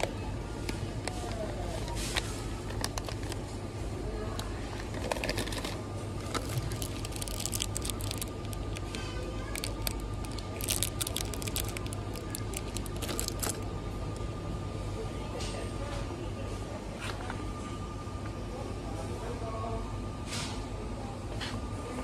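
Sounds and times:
steady background hum: 0:00.0 - 0:22.0
plastic packaging crinkling: 0:01.2 - 0:03.5, 0:04.8 - 0:14.2.

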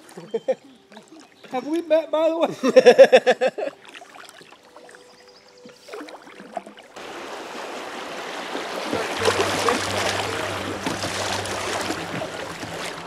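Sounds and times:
creek water rushing over rocks: 0:06.4 - 0:13.0
low steady hum: 0:08.7 - 0:13.0.

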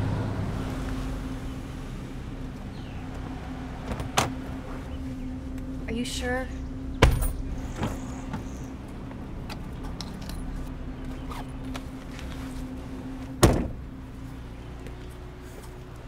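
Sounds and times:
car engine idling: 0:00.0 - 0:16.0
car door shutting: 0:03.8 - 0:04.5, 0:13.2 - 0:13.8.

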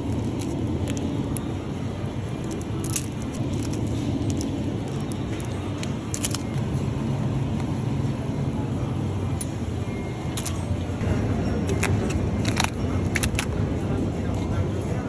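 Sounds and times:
refrigerator hum: 0:00.0 - 0:15.0
plastic snack packets rustling: 0:02.4 - 0:05.5, 0:06.1 - 0:06.5, 0:11.7 - 0:13.5.

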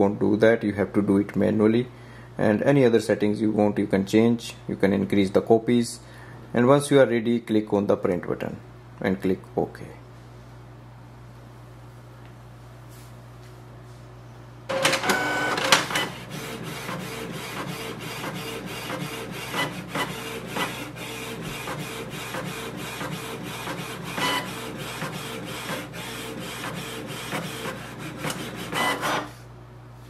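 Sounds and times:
inkjet printer whirring and clicking: 0:14.7 - 0:29.3.

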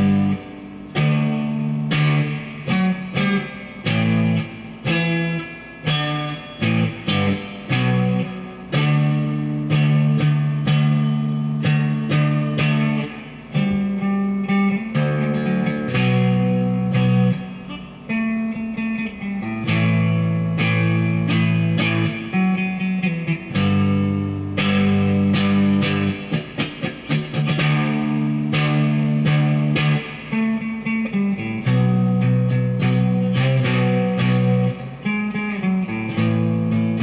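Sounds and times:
electric guitar: 0:00.0 - 0:37.0.

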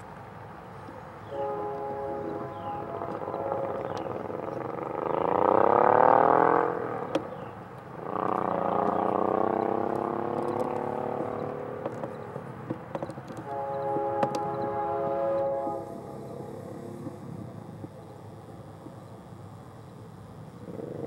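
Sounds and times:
locomotive air horn blasts: 0:01.2 - 0:04.5, 0:13.4 - 0:17.3.

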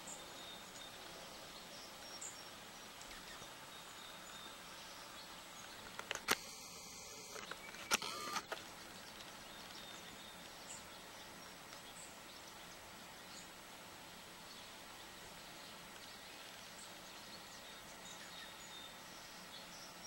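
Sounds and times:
sharp click: 0:05.9 - 0:06.6.

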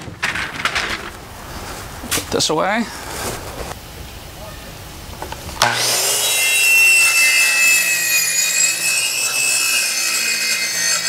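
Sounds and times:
circular saw cutting: 0:05.6 - 0:11.0.

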